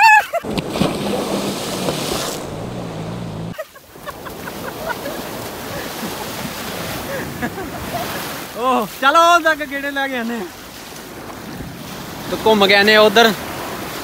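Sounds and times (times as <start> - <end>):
wind buffeting microphone: 0.4 - 3.6
surf breaking on sand: 0.4 - 14.0.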